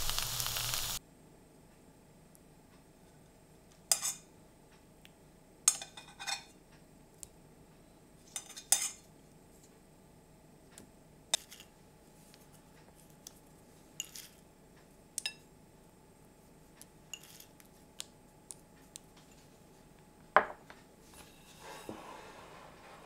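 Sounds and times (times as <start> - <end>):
seeds ticking onto food: 0.0 - 1.0, 16.8 - 19.2
ceramic bowl knock: 20.4 - 20.6.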